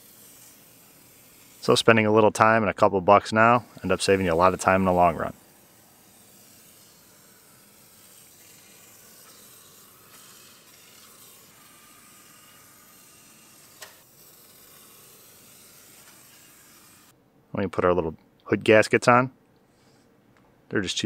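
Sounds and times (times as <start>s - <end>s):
aerosol can spraying hiss: 0.0s - 1.8s, 3.4s - 17.2s.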